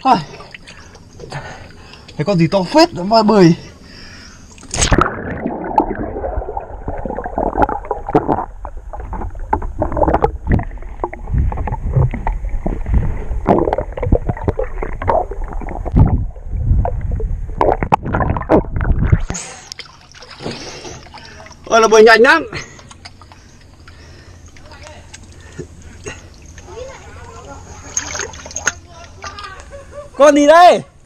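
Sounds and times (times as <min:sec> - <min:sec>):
gurgling water underwater: 0:04.5 - 0:21.7
low underwater rumble: 0:04.9 - 0:19.3.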